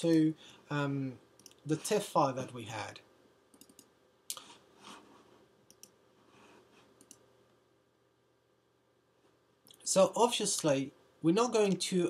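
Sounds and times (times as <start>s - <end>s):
faint computer clicks: 3.5s - 4.6s, 5.6s - 6.0s, 7.0s - 7.3s.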